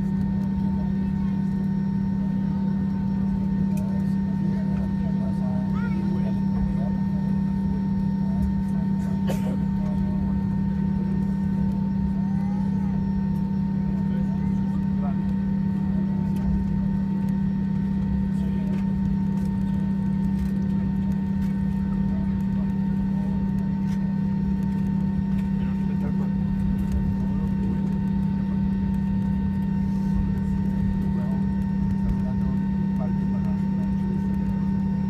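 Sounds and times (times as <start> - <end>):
aircraft rolling rumble: 0.0 - 35.0
jet engines idling hum: 0.0 - 35.0.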